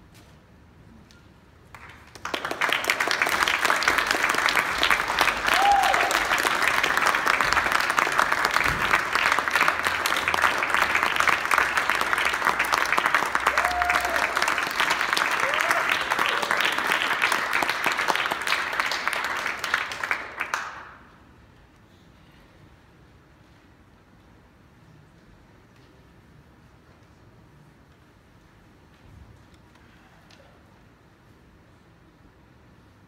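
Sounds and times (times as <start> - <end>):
audience applauding: 1.7 - 21.1
crowd calls: 5.1 - 7.7.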